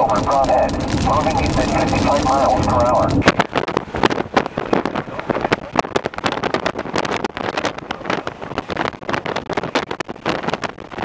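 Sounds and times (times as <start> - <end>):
car road noise: 0.0 - 11.0
wind buffeting microphone: 0.0 - 11.0.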